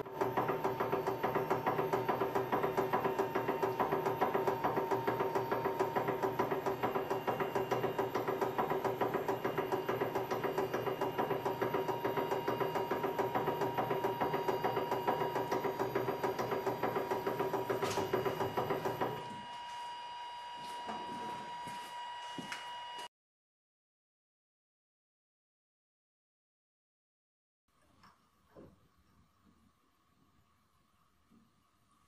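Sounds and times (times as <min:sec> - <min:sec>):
hydraulic press humming: 0:00.0 - 0:20.1.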